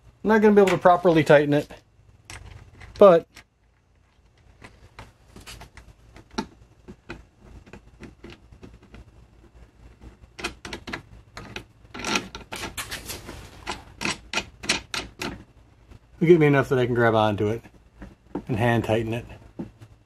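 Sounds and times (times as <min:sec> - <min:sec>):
nut and bolt clicks: 0:10.4 - 0:12.8, 0:13.7 - 0:15.4.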